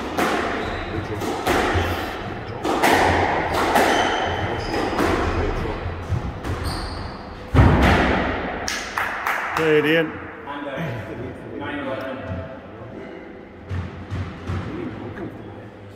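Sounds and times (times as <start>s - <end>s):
squash ball hitting rackets and walls: 0.0s - 9.2s, 13.6s - 14.8s
shoes squeaking on wooden floor: 0.6s - 1.2s, 6.6s - 7.4s.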